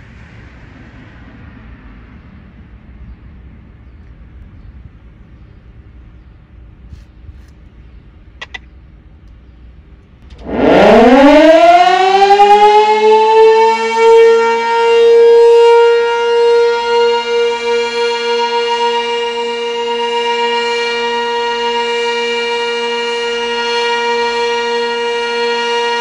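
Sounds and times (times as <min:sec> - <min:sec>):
small clicks: 0:08.4 - 0:09.4
outdoor warning siren: 0:10.2 - 0:26.0.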